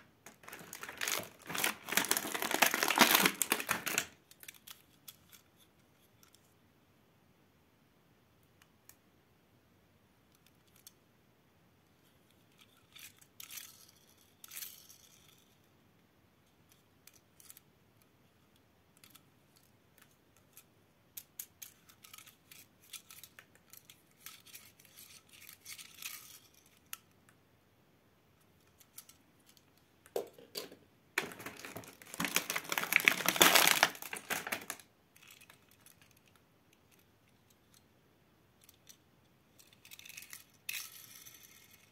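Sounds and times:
packaging crinkling: 0.0s - 4.6s, 31.2s - 36.0s.

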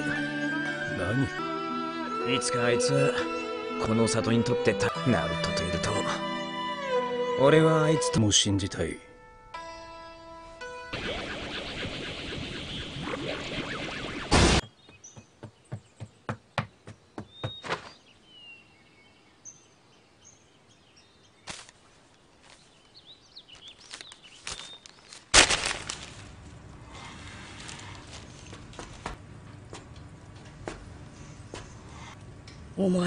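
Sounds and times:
sharp taps: 14.6s - 17.8s
quiet forest ambience: 14.7s - 33.0s.

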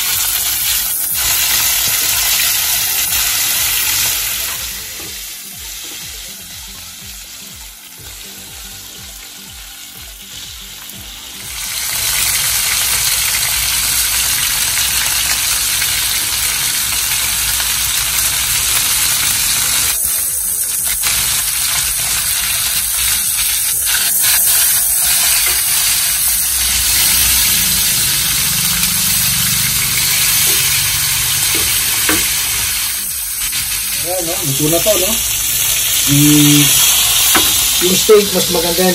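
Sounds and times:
steaks sizzling in a pan: 0.0s - 38.9s
tongs tapping and scraping pan: 31.4s - 32.4s.

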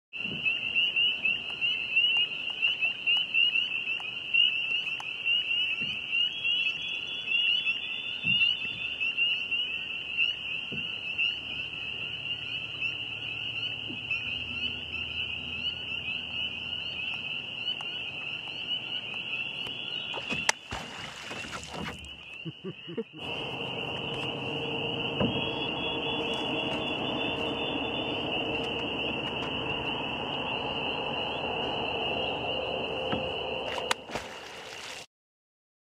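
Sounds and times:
frogs peeping: 0.2s - 35.0s
water splashing: 20.0s - 22.6s, 23.2s - 35.1s
beaver tail slapping water: 20.1s - 22.4s, 33.1s - 35.1s.

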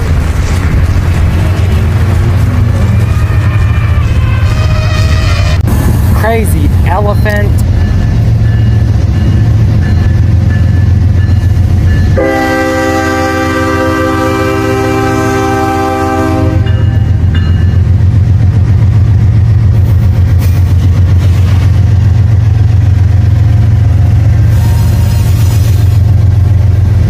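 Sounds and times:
locomotive horn chord blast: 12.2s - 16.9s.

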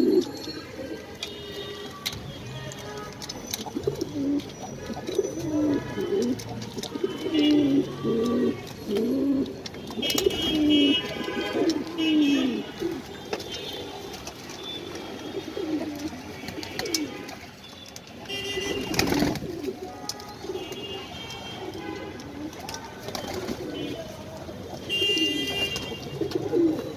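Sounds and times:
pigeons cooing: 0.0s - 1.9s, 3.5s - 17.3s, 18.4s - 20.8s, 21.7s - 26.9s.

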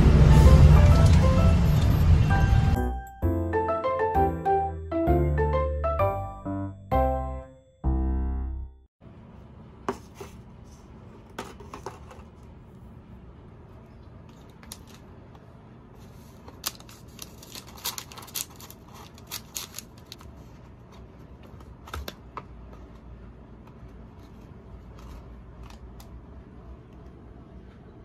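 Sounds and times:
cardboard and paper crinkling: 16.0s - 23.1s.

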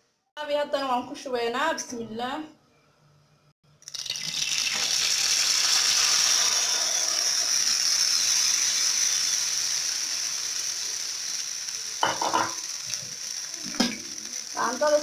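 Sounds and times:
frying sizzle in hot oil: 3.7s - 15.0s.

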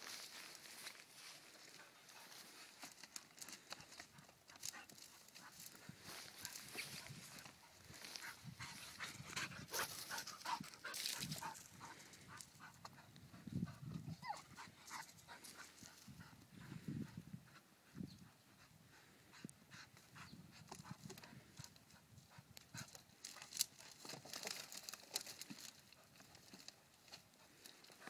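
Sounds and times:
twigs cracking and snapping: 2.7s - 9.0s, 22.8s - 28.0s
dog panting: 3.7s - 23.0s.

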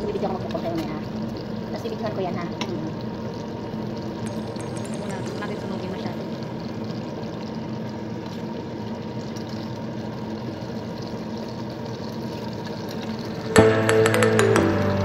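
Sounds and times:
fish sizzling in hot oil: 0.0s - 13.9s
oil spattering crackle: 2.6s - 9.6s.

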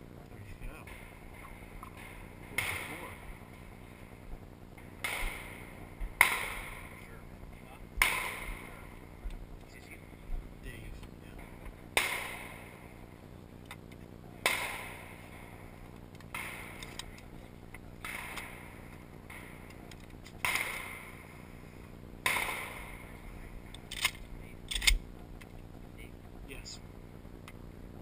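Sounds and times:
shotgun shots with echo: 0.8s - 4.2s, 4.8s - 9.0s, 11.4s - 13.0s, 14.4s - 16.9s, 18.0s - 19.7s, 20.4s - 21.3s, 22.2s - 23.4s.

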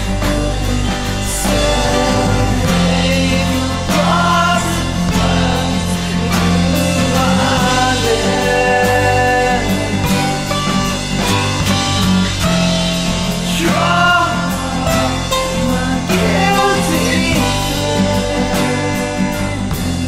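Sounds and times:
person singing folk song: 0.0s - 11.5s, 12.8s - 20.0s
instrumental accompaniment: 0.0s - 20.0s.

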